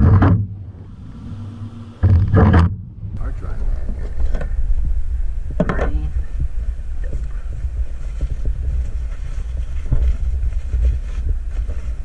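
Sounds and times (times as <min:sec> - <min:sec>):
wind buffeting microphone: 0:00.0 - 0:12.0
short rustle: 0:07.1 - 0:12.0.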